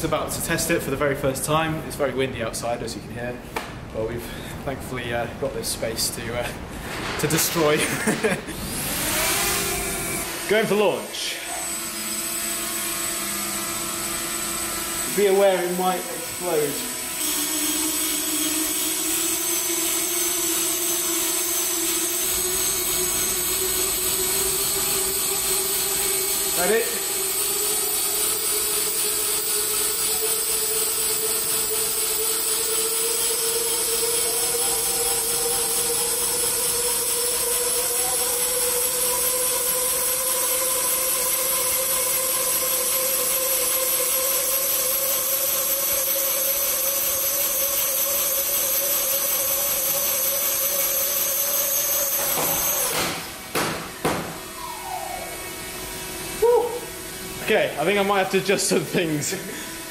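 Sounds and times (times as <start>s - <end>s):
electric fans whining: 0.0s - 59.9s.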